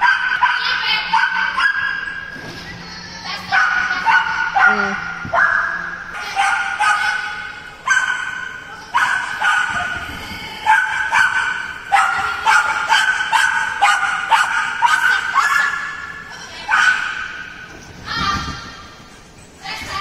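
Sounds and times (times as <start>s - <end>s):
dog barking high-pitched: 0.0s - 2.1s, 3.4s - 10.0s, 10.6s - 17.5s.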